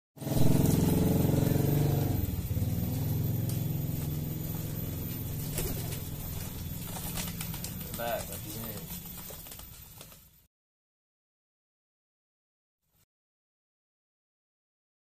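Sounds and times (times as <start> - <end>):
vehicle engine running: 0.2 - 10.0
pigeon wings fluttering: 0.2 - 10.5.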